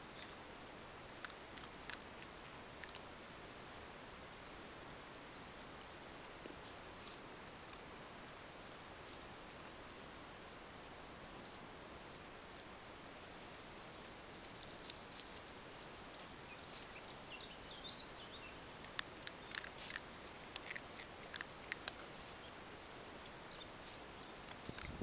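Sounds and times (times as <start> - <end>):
steady hiss: 0.0 - 25.0
dogs nosing through dry grass: 4.8 - 25.0
kibble being crunched: 18.8 - 22.4.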